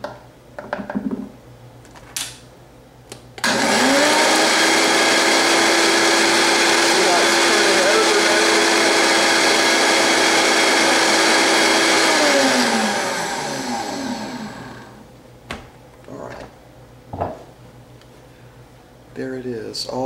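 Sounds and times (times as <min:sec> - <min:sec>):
blender running at high speed: 0:03.4 - 0:15.0.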